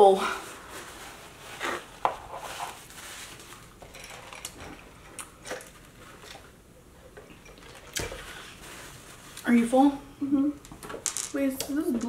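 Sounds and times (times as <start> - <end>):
paper napkin rustling: 0.3 - 3.8, 8.2 - 9.4.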